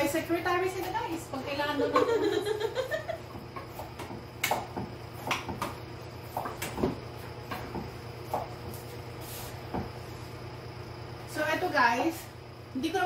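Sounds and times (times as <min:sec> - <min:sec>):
low steady hum: 0:00.0 - 0:13.0
knives chopping on wooden boards: 0:03.6 - 0:08.5.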